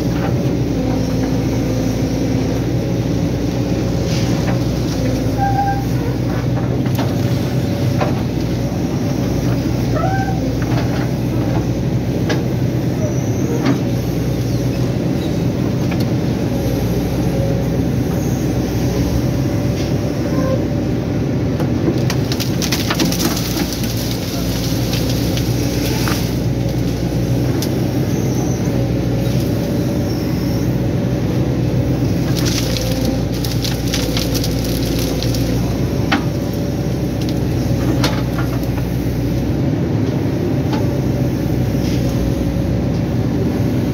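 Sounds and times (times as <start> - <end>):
excavator diesel engine running: 0.0 - 43.9
branches cracking: 22.0 - 27.8, 32.1 - 38.8.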